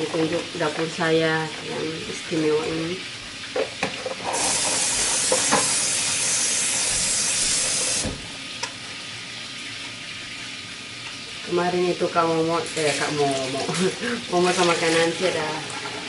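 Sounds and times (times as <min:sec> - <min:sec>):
tofu sizzling in hot oil: 0:04.2 - 0:08.1.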